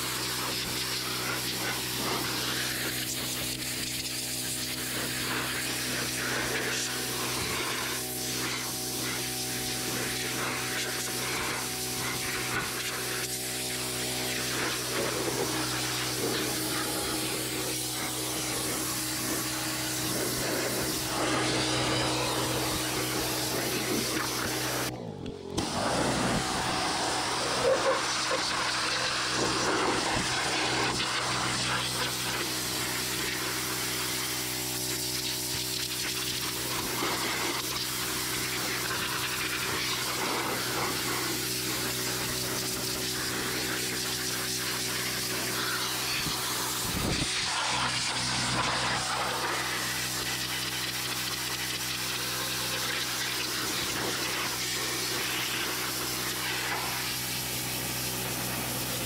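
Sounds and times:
water jet spraying on metal: 0.0 - 24.9, 25.6 - 59.0
pressure washer hum: 0.0 - 59.0.

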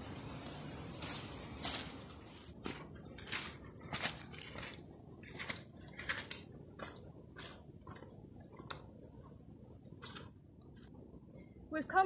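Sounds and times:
footsteps on loose stones: 0.6 - 8.7.

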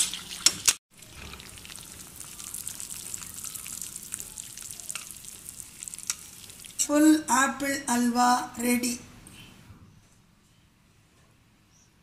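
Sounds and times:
spatula stirring bubbling halwa: 0.0 - 6.8
hot food crackling: 0.0 - 6.9.

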